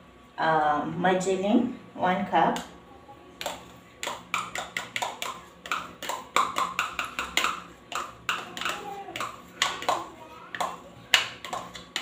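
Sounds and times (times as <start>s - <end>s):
metal spoon tapping plastic cup: 3.4s - 12.0s.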